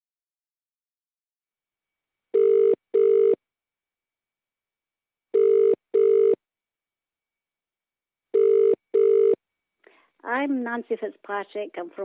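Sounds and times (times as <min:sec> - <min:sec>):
telephone ringing tone: 0:02.3 - 0:03.4, 0:05.3 - 0:06.4, 0:08.3 - 0:09.4.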